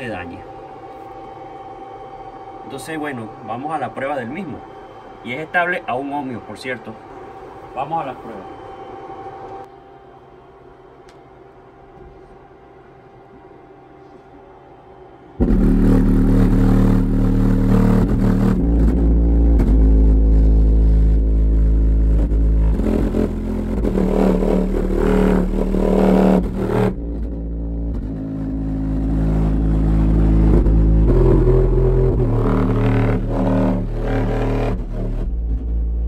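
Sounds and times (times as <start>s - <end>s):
loud bass-heavy song from subwoofers: 15.4s - 36.0s.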